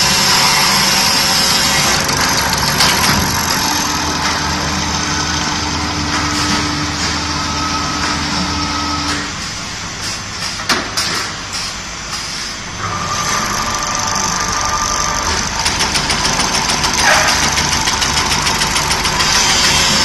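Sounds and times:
machine motors humming with whine: 0.0 - 10.6, 11.4 - 20.0
high whine: 12.5 - 16.1.

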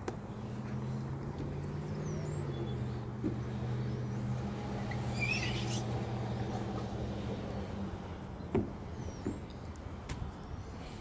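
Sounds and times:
sneaker squeak on slide: 4.8 - 6.0.

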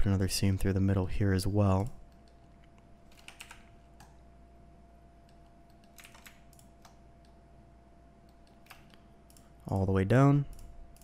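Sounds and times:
faint steady hum: 0.0 - 11.0
keyboard clicks: 2.1 - 4.2, 5.2 - 7.4, 8.2 - 9.9.

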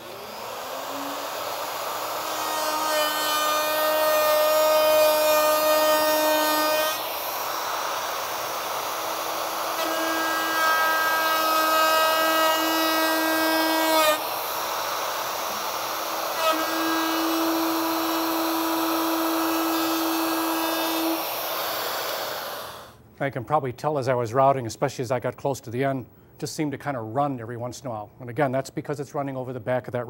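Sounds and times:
router motor whining while cutting: 0.0 - 22.9.

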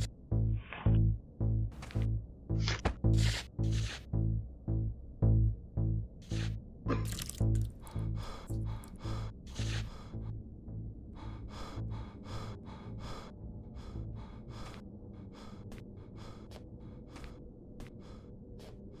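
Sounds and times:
low steady hum: 0.0 - 19.0
man panting heavily: 7.6 - 19.0.

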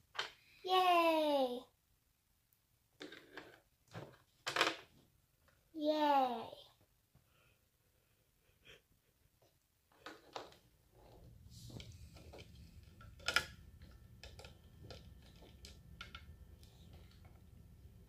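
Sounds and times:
faint low hum: 10.8 - 18.0.

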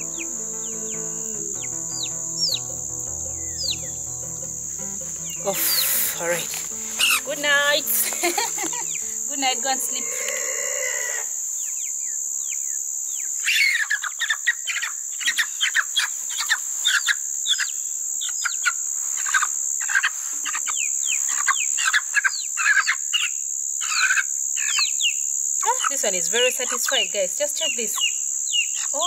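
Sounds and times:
high bird chirps: 0.0 - 9.8
insects droning: 0.0 - 29.0.

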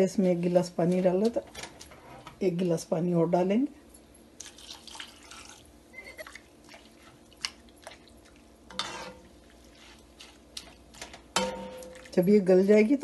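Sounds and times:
water pouring into a pot: 4.4 - 5.7
metal spoon stirring a pot: 8.7 - 12.3.

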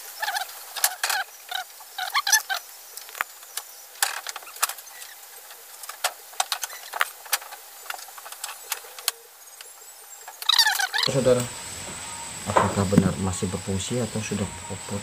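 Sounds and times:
small irregular clicks: 0.2 - 11.1.

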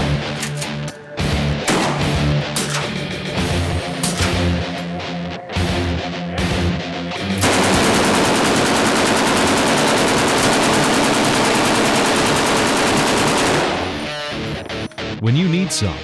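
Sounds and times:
heavy metal guitar music: 0.0 - 16.0
machine gun firing: 7.4 - 14.3.

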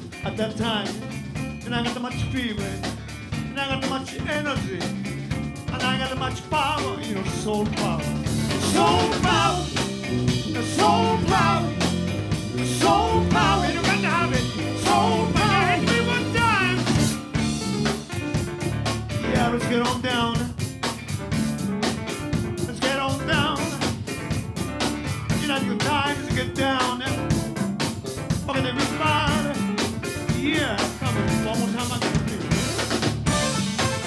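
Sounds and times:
band playing: 0.0 - 34.0
harmonica lead: 33.3 - 34.0.

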